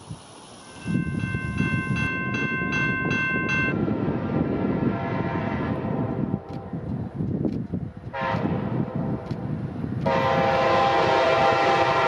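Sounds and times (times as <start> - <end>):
moving train rumble: 0.0 - 12.0
locomotive air horn chord: 4.7 - 6.5, 8.1 - 9.2, 10.1 - 12.0.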